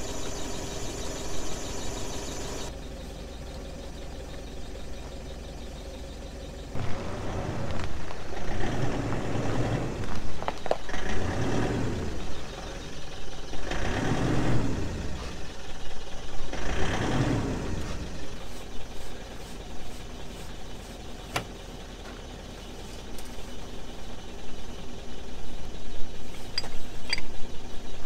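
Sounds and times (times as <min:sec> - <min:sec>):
pickup engine revving: 0:06.5 - 0:19.3.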